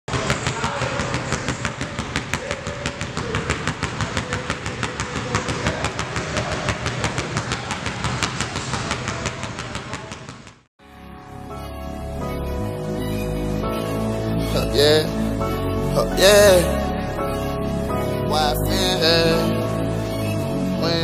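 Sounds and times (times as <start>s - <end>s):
basketball bouncing on wooden floor: 0.1s - 10.6s.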